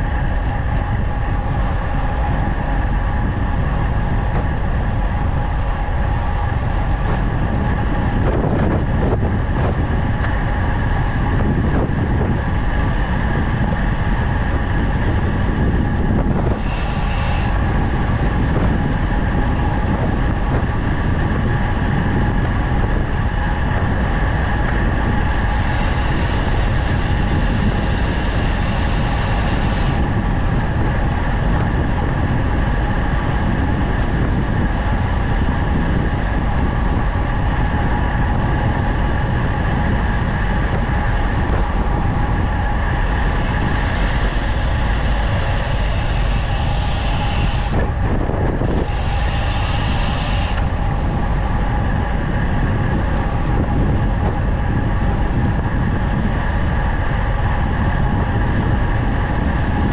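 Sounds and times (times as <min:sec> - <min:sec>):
steady whirr: 0:00.0 - 0:59.9
wind rushing over microphone: 0:00.0 - 0:59.9
bright hiss: 0:16.6 - 0:17.6, 0:43.0 - 0:47.8, 0:48.7 - 0:50.7.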